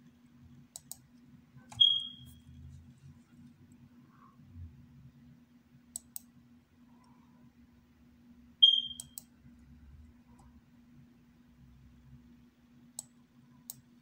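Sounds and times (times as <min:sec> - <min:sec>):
computer mouse clicks: 0:00.7 - 0:01.0, 0:05.9 - 0:06.3, 0:13.0 - 0:13.9.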